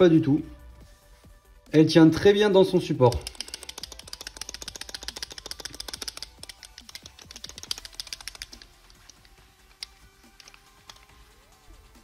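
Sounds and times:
faint background music: 0:00.0 - 0:12.0
plastic grenade rattling in holder: 0:03.0 - 0:11.2.

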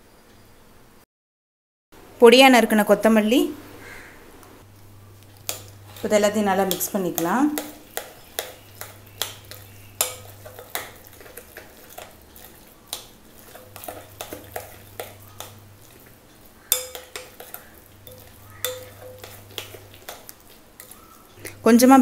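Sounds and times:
spoon scraping glass bowl: 0:05.4 - 0:21.6.

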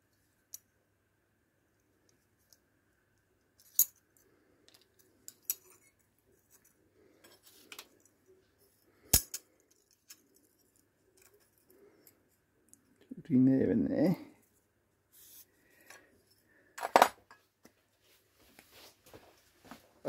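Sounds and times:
metallic clinks and scrapes: 0:05.0 - 0:08.1.

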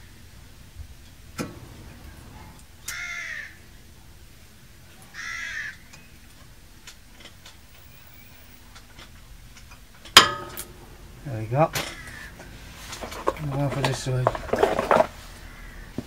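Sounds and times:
brake pads clicking into bracket: 0:01.0 - 0:03.0
bird calling: 0:01.4 - 0:04.2, 0:04.8 - 0:06.5, 0:07.6 - 0:09.0, 0:10.2 - 0:16.0.

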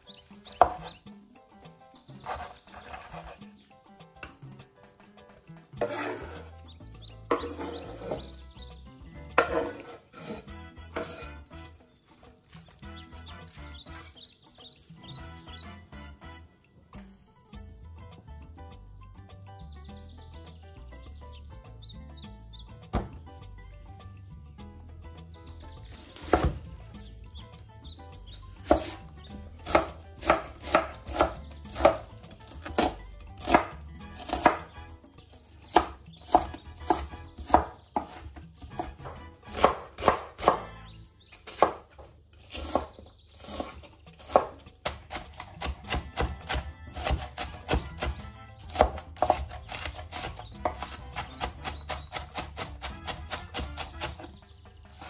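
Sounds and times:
knife chopping on wooden board: 0:00.4 - 0:01.0, 0:02.1 - 0:03.4, 0:05.8 - 0:06.6, 0:07.3 - 0:08.4, 0:09.3 - 0:11.4, 0:22.9 - 0:23.3, 0:25.8 - 0:26.7, 0:28.6 - 0:55.0.

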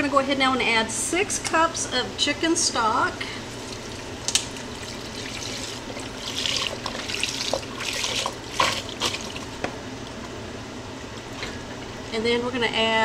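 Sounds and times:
broth pouring and splashing: 0:03.5 - 0:09.6.

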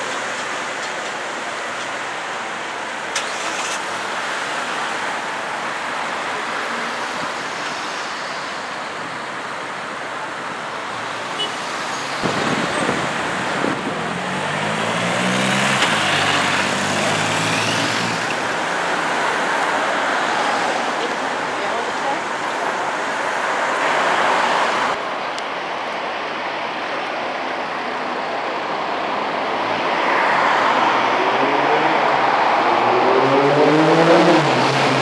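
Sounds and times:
city street traffic: 0:00.0 - 0:35.0
vehicle engine hum passing: 0:11.8 - 0:22.7.

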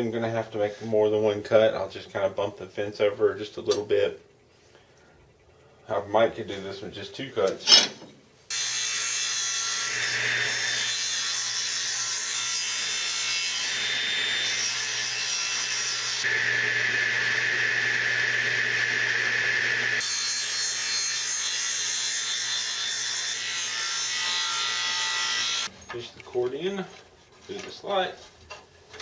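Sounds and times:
table saw cutting wood: 0:08.5 - 0:25.7.

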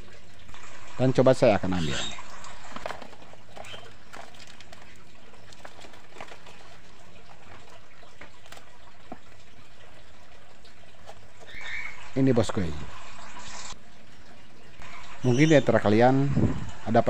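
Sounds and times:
cardboard box rustling: 0:02.7 - 0:09.3.

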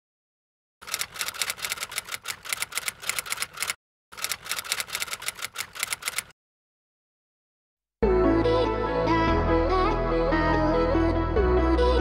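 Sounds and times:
typewriter key clicks: 0:00.9 - 0:06.3.

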